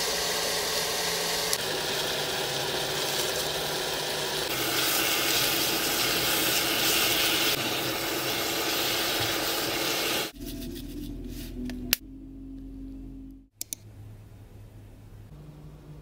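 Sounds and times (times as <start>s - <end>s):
vegetables sizzling in a frying pan: 1.7s - 10.3s.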